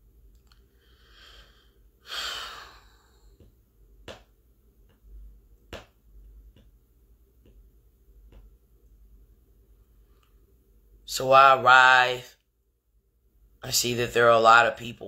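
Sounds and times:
person breathing into microphone: 0.7 - 3.5.

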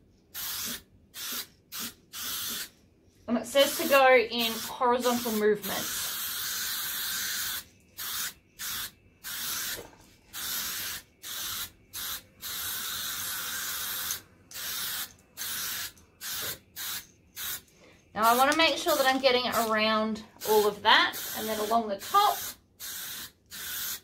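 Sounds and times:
spray paint can hissing: 0.3 - 2.7, 3.6 - 19.8, 20.4 - 24.0.

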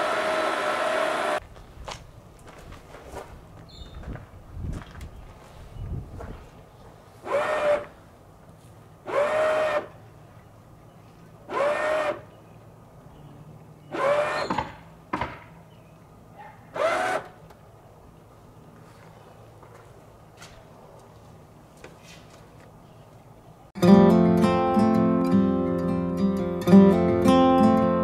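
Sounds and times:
electric jack motor whining: 0.0 - 1.4, 7.2 - 8.0, 9.0 - 10.0, 11.5 - 12.3, 13.9 - 14.7, 16.8 - 17.4.

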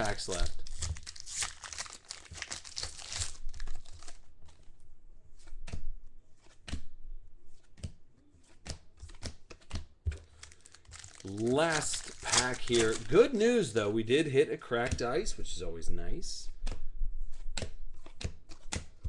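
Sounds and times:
foil wrapper crinkling and tearing: 0.0 - 4.2, 10.2 - 13.5
cards flicking and swishing: 7.5 - 10.3, 16.6 - 19.0.

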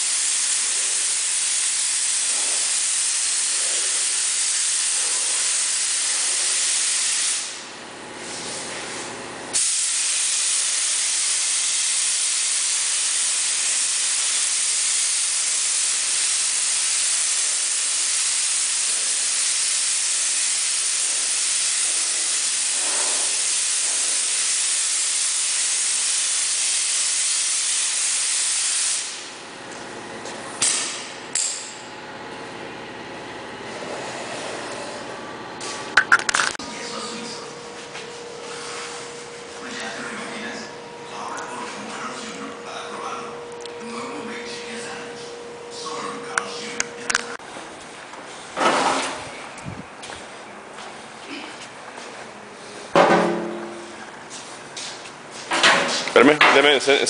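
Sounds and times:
paint spray gun hissing: 0.0 - 8.6, 9.6 - 29.3
short air blasts: 0.0 - 8.8, 9.5 - 29.4.

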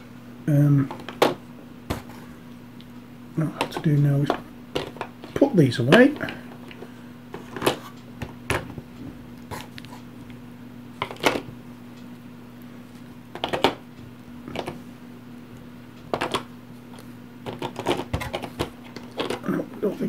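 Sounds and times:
steady low hum: 0.0 - 20.0
plastic miniatures clacking: 17.5 - 19.6.

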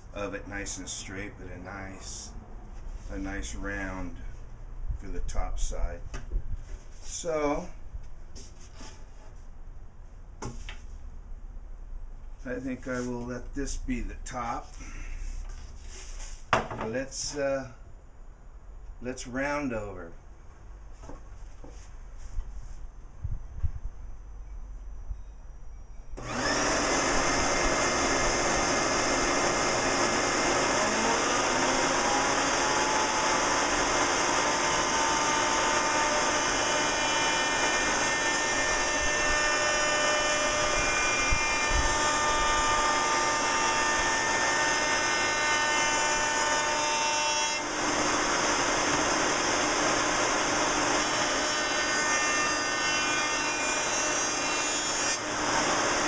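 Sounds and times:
router cutting wood: 26.2 - 56.0.

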